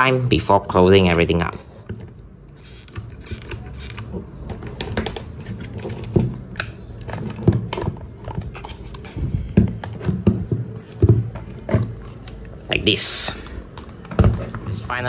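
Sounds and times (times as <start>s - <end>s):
plastic parts clicking and tapping: 1.9s - 12.6s.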